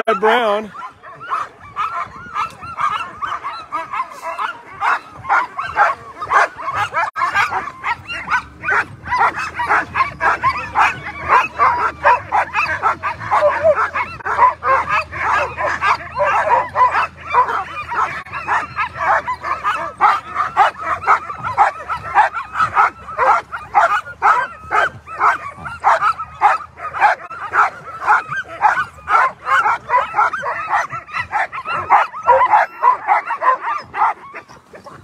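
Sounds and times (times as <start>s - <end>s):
sled dogs barking: 0.0s - 35.0s.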